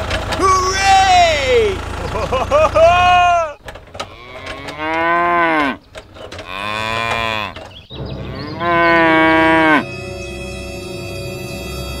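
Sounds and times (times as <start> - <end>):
cow mooing: 4.0 - 5.8, 6.4 - 10.0.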